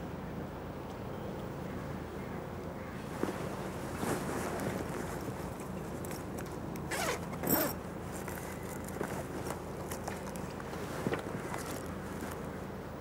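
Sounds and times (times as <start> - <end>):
backpack zipper pulled open: 6.9 - 7.8.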